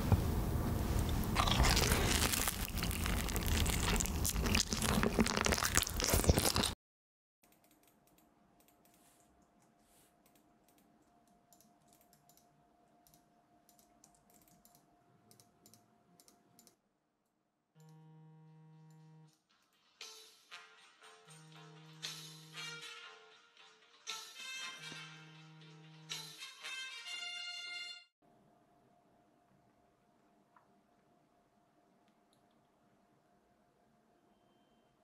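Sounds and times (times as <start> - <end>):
crunching bites of fried chicken: 1.3 - 6.8
computer mouse clicks: 7.4 - 16.8
music: 19.4 - 28.1.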